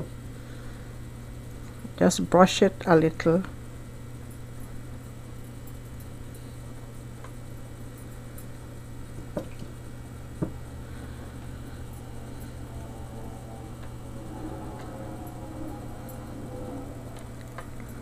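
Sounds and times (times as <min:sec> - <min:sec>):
low hum: 0:09.8 - 0:18.0.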